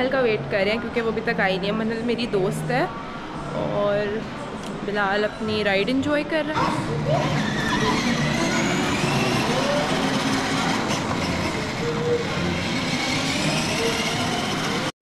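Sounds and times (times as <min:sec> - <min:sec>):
plastic wheels rolling on tiles: 0:07.2 - 0:14.9.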